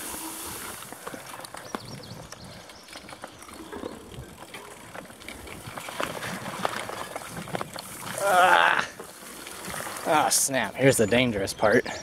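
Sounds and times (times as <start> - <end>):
bike clicks and rattles: 0.0 - 11.8
tyres rolling on dirt: 0.0 - 12.0.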